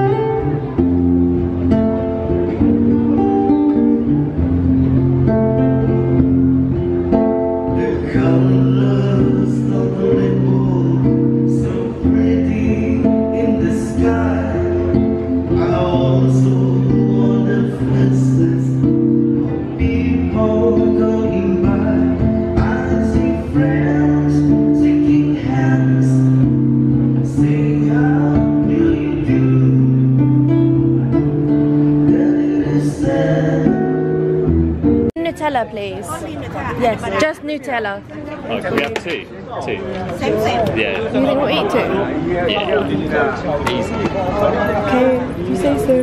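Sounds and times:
strummed acoustic guitar: 0:00.0 - 0:35.6
man singing: 0:07.5 - 0:34.2.

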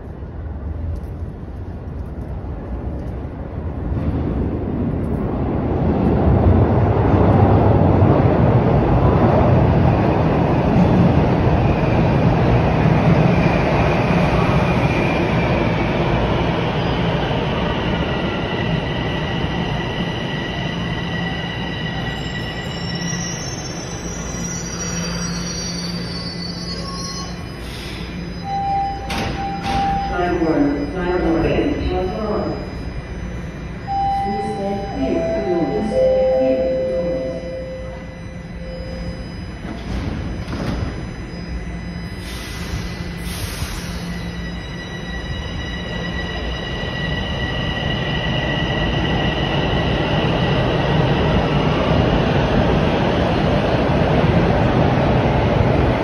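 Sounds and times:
subway train rumble: 0:00.0 - 0:56.0
brakes whining and squealing: 0:19.4 - 0:31.6.

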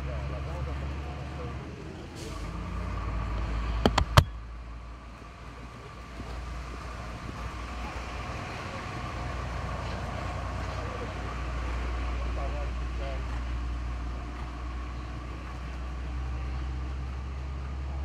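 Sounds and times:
low outdoor rumble: 0:00.0 - 0:18.0
sharp knocks: 0:03.8 - 0:04.3.

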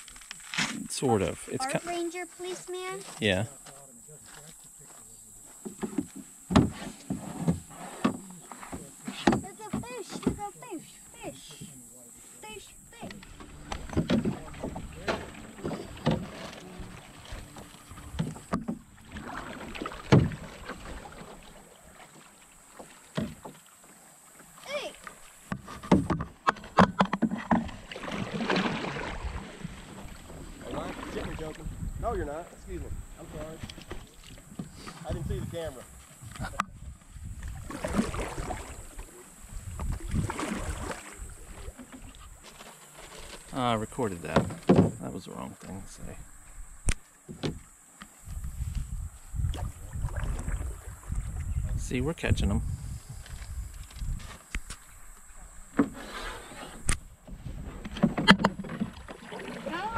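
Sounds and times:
paddle knocking canoe hull: 0:05.5 - 0:11.8, 0:12.4 - 0:32.1, 0:32.9 - 0:45.1, 0:47.2 - 0:48.4, 0:53.8 - 0:59.9
wind rumbling on microphone: 0:28.9 - 0:34.0, 0:35.0 - 0:42.4, 0:48.2 - 0:55.7.

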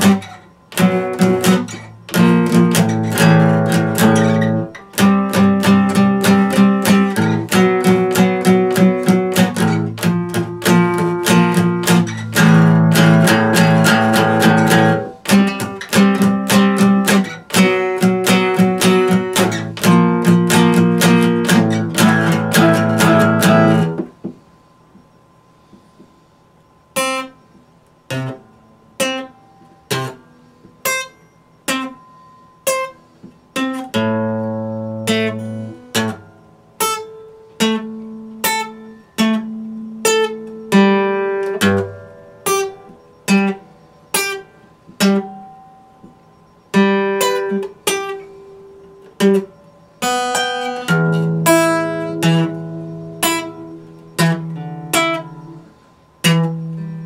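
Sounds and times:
acoustic guitar picking: 0:00.0 - 0:57.0.

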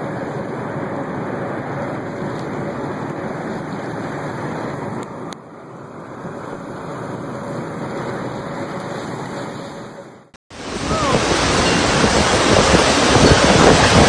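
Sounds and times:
heavy rain: 0:00.0 - 0:14.0
steady rushing noise: 0:00.0 - 0:14.0
tornado wind: 0:00.0 - 0:14.0
wind buffeting microphone: 0:00.0 - 0:14.0.

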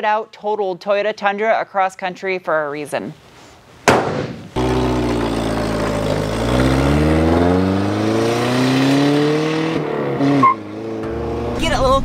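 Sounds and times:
car engine accelerating: 0:04.4 - 0:12.0.

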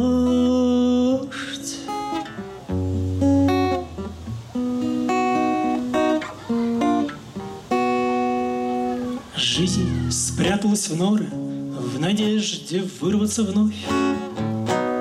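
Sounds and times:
man singing: 0:00.0 - 0:02.2, 0:09.3 - 0:14.4
acoustic guitar strumming: 0:00.0 - 0:15.0.

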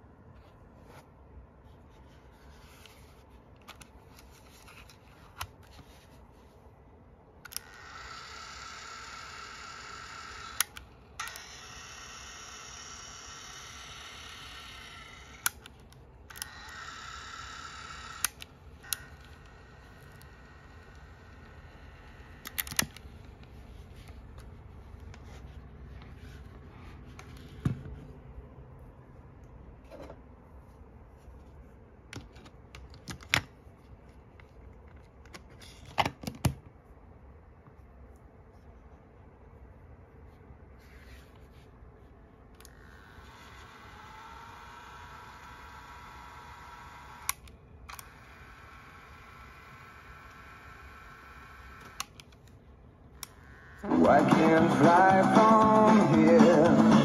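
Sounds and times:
cassette motor whirring: 0:07.5 - 0:15.6, 0:16.3 - 0:23.0, 0:42.6 - 0:52.2.

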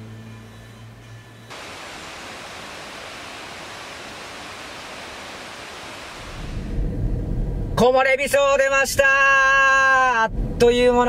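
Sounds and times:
steady rushing noise: 0:01.5 - 0:07.8.

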